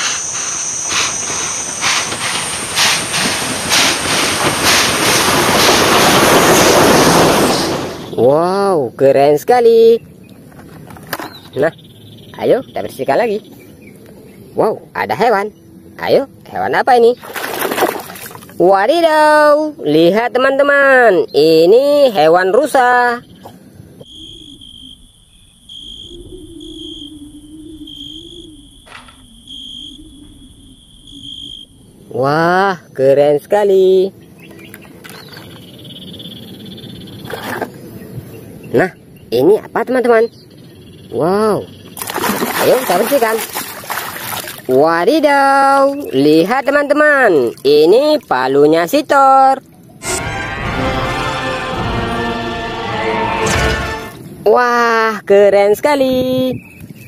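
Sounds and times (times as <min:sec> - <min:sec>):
steam hiss: 0:00.0 - 0:08.2
steam locomotive chuffing: 0:00.0 - 0:08.2
insects trilling: 0:00.0 - 0:50.0
low wavering hum: 0:23.7 - 0:32.3.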